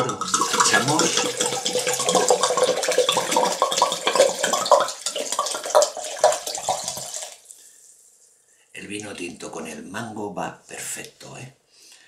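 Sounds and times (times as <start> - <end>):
wine pouring and splashing into jug: 0.0 - 7.5.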